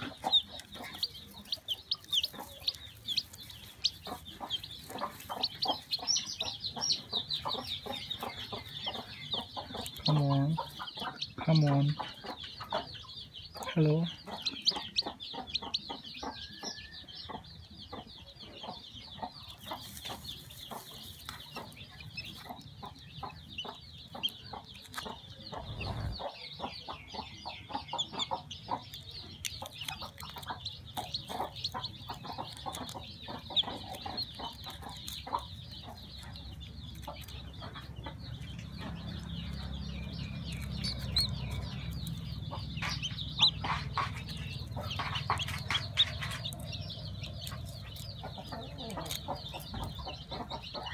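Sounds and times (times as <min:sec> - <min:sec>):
eggshell and straw crackling: 0:00.0 - 0:11.1, 0:28.8 - 0:50.6
chick peeping: 0:00.0 - 0:50.9.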